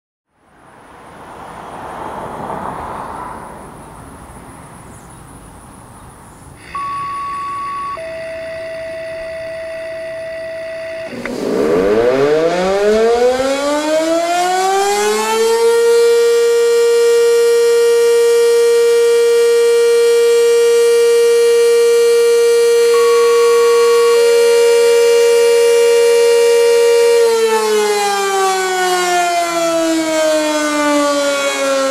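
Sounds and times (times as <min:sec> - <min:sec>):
two-tone activation signal: 0:06.6 - 0:13.2, 0:22.8 - 0:25.4
tornado siren winding up: 0:06.6 - 0:31.9
brief rushing noise: 0:11.1 - 0:13.8.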